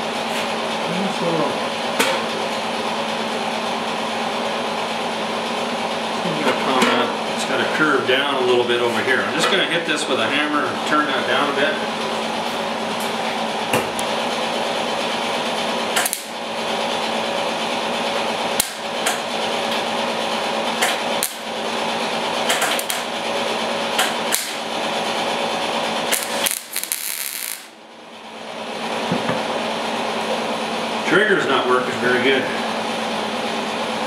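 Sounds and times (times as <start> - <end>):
mig welder crackling: 13.8 - 17.1, 18.2 - 19.9, 20.7 - 27.8.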